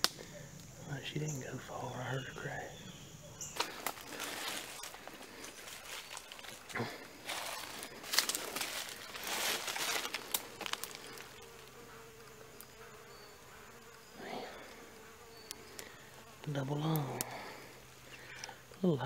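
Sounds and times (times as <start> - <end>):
faint buzzing hum: 0.0 - 19.0
rustling in dry leaves: 3.4 - 11.9.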